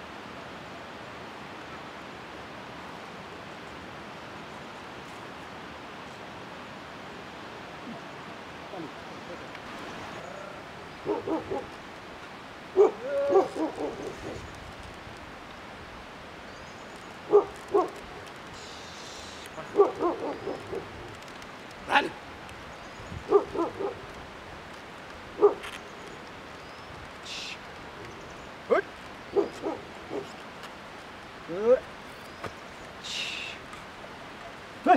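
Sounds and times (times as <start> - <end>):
person shouting calls: 12.9 - 13.8, 21.8 - 22.2, 33.0 - 33.6.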